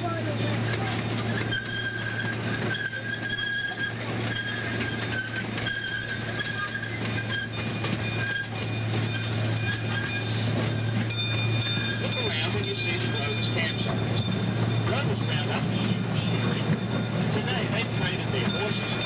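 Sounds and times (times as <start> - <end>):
miniature train drone: 0.0 - 19.0
wheels clicking over rail joints: 0.0 - 19.0
high metallic squeal: 1.2 - 14.9.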